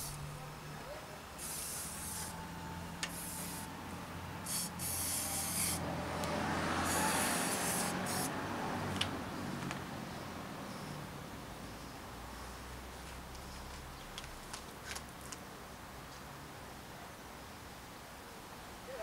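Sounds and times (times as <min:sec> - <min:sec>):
aerosol spray hissing: 0:01.4 - 0:02.5, 0:03.1 - 0:03.8, 0:04.4 - 0:05.8, 0:06.8 - 0:08.3.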